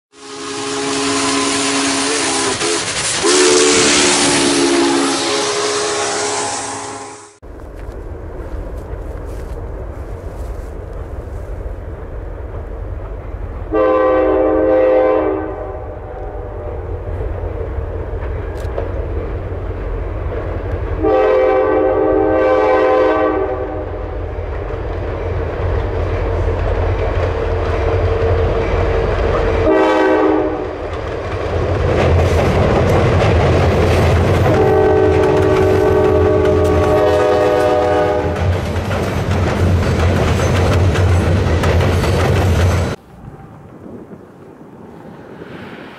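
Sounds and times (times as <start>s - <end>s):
locomotive air horn blasts: 0.1s - 7.4s, 13.7s - 16.8s, 21.0s - 24.0s, 29.6s - 30.8s, 34.4s - 38.4s
locomotive engine rumble: 7.4s - 45.9s
train wheels clacking over rails: 24.3s - 29.7s, 30.6s - 43.0s.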